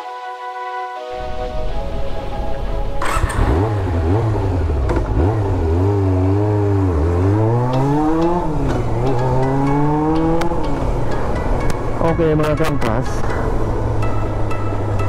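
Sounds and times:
motorcycle engine revving: 3.0 - 12.0.

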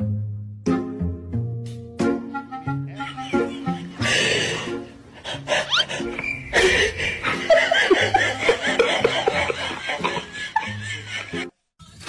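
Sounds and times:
laughter: 3.0 - 4.1, 6.6 - 11.5
quick rising squeaks: 5.7 - 7.2.

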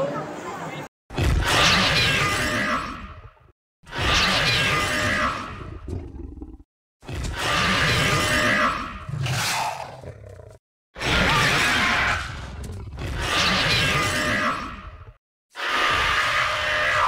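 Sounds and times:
animatronic dinosaur roaring: 15.6 - 17.0.

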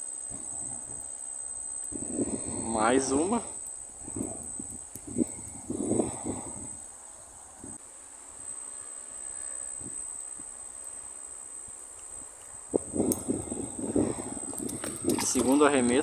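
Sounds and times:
insects chirring: 0.0 - 16.0
faint handling noises: 11.8 - 16.0.

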